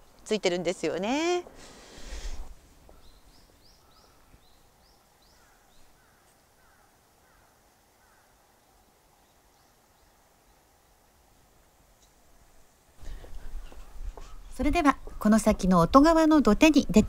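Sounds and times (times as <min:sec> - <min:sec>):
small birds chirping: 0:02.1 - 0:11.2, 0:13.0 - 0:15.8.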